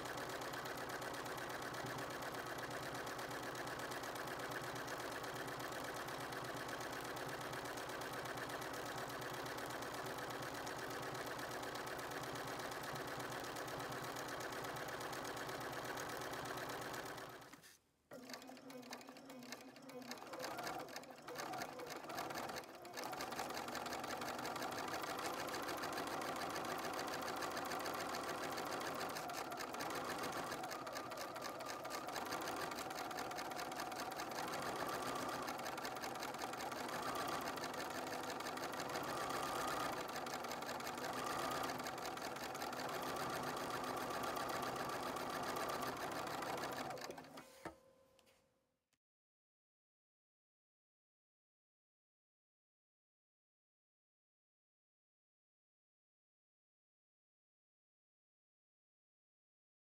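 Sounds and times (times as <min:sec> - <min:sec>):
sewing machine running: 0:00.0 - 0:47.6.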